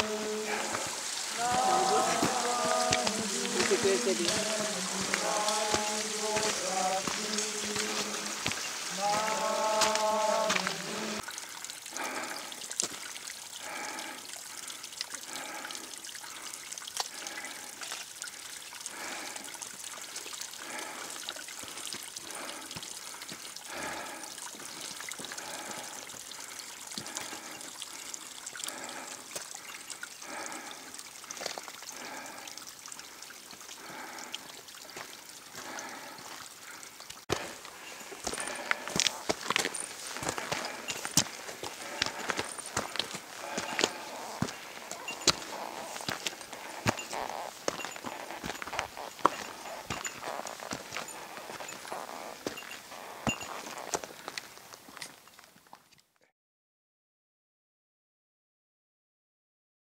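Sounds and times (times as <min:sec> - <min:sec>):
footsteps on muddy stony trail: 0:00.0 - 0:14.2, 0:15.3 - 0:15.9, 0:16.9 - 0:56.0
water trickling: 0:00.0 - 0:56.0.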